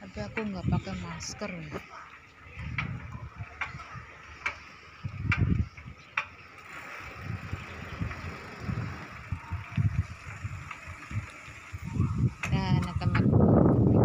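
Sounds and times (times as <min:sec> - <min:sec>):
wind buffeting microphone: 0:00.0 - 0:14.0
bicycle tyre hiss on road: 0:06.6 - 0:12.2.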